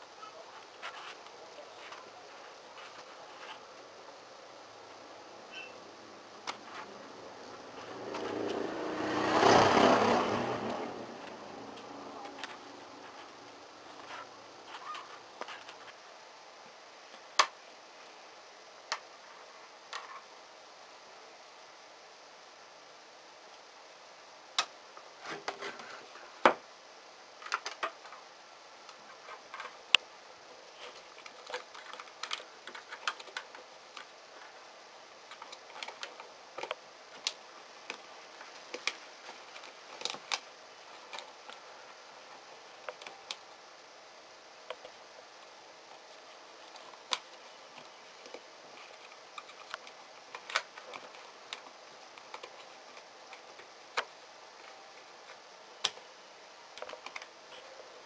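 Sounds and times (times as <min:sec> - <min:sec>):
plastic parts clicking and tapping: 0:30.8 - 0:34.1, 0:35.3 - 0:41.6, 0:46.6 - 0:56.0, 0:56.7 - 0:57.3.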